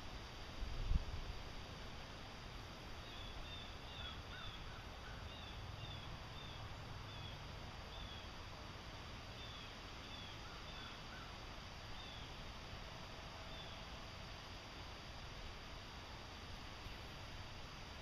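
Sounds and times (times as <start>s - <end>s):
outdoor background hiss: 0.0s - 18.0s
faint bird calls: 3.0s - 8.3s, 9.4s - 12.4s.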